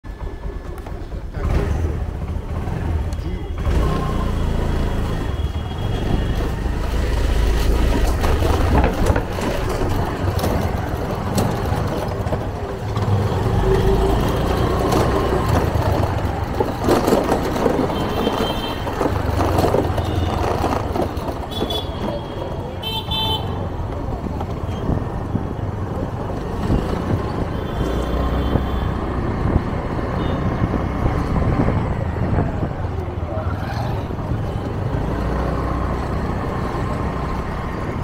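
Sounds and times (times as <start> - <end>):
motorbike engine and road rumble: 0.1 - 38.0
wind buffeting microphone: 28.6 - 33.4.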